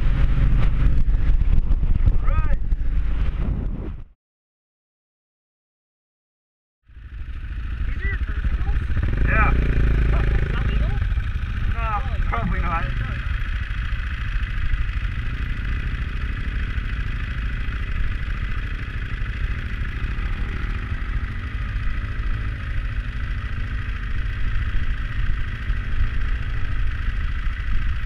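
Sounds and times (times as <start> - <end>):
motorcycle engine running: 0.0 - 4.0, 6.8 - 28.0
wind buffeting microphone: 0.0 - 4.1.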